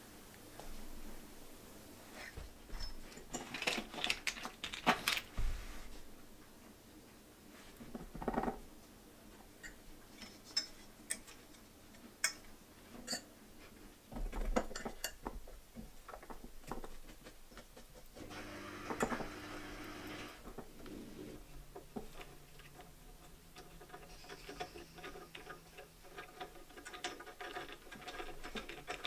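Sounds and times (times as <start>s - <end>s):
steel tubes clinking and knocking: 12.2s - 13.3s, 21.8s - 29.0s.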